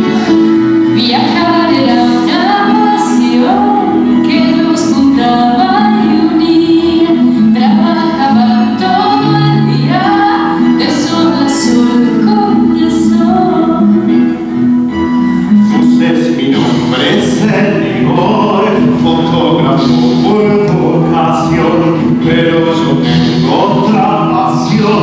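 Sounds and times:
woman singing into a microphone: 0:00.0 - 0:14.4
instrumental backing music: 0:00.0 - 0:25.0.

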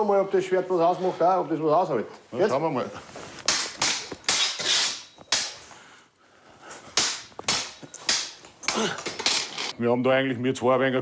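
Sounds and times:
metal sword blades clashing: 0:03.5 - 0:05.6, 0:07.0 - 0:09.7.

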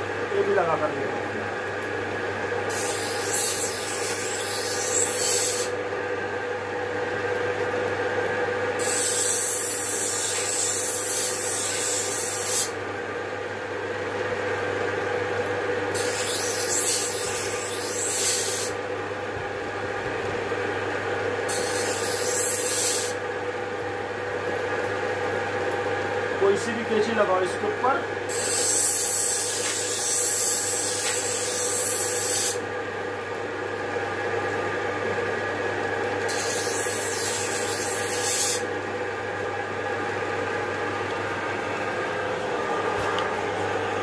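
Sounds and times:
sharpening wheel motor hum: 0:02.6 - 0:05.8, 0:08.7 - 0:12.9, 0:15.9 - 0:18.8, 0:21.3 - 0:23.4, 0:28.2 - 0:32.7, 0:36.2 - 0:38.8
steel tool grinding: 0:02.7 - 0:05.7, 0:08.8 - 0:12.7, 0:15.9 - 0:18.7, 0:21.5 - 0:23.2, 0:28.3 - 0:32.6, 0:36.3 - 0:38.6.

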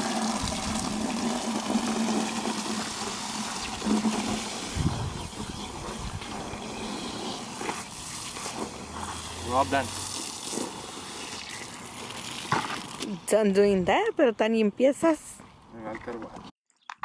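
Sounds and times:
water spraying onto horse: 0:00.0 - 0:13.0.

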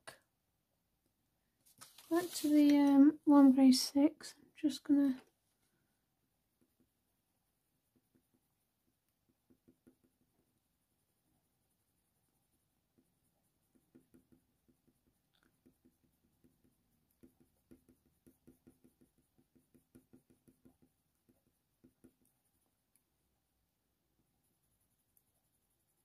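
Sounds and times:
colour pencil scratching on paper: 0:01.8 - 0:03.5, 0:11.6 - 0:23.0, 0:24.2 - 0:26.0.

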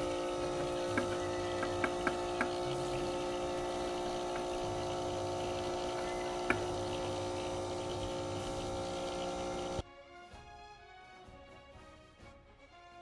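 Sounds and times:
small electric pump humming: 0:00.0 - 0:09.8.

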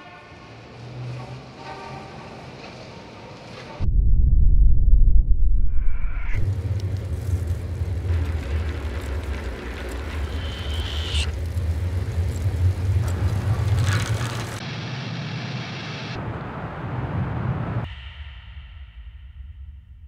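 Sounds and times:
brief rising whine: 0:03.8 - 0:06.5
vehicle rumble with road noise: 0:06.3 - 0:17.9.

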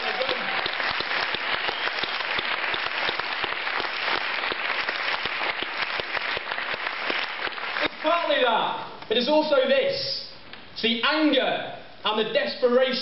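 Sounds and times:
crowd applauding: 0:00.0 - 0:08.3.

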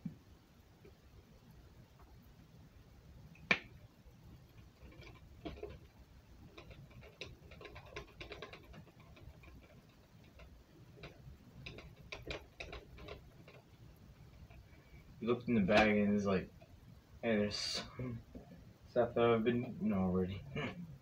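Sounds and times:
thin plastic clicking and crackling: 0:03.3 - 0:14.9.

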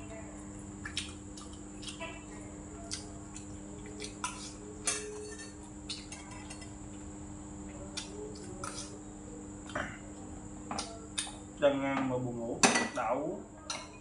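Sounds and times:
steady background hum: 0:00.0 - 0:14.0
utensils clinking on bowls: 0:04.0 - 0:06.8.

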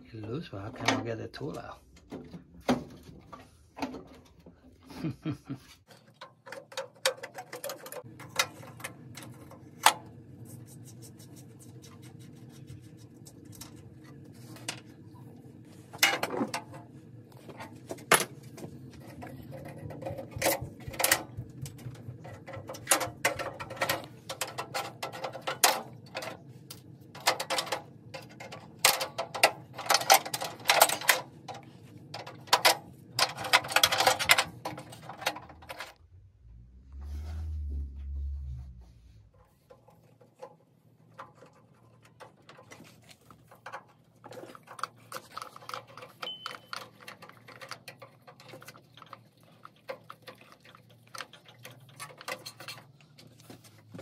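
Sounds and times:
steady low hum: 0:07.9 - 0:40.0.

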